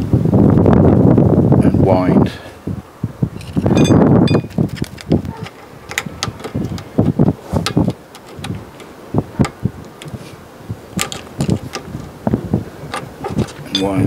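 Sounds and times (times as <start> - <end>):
metal tool clicking and scraping: 3.4 - 6.9.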